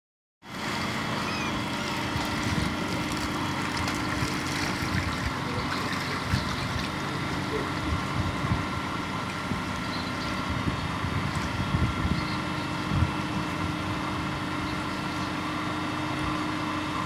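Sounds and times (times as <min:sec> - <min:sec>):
water splashing and trickling: 0:00.5 - 0:09.9, 0:10.9 - 0:12.5
small motor running: 0:00.5 - 0:17.0.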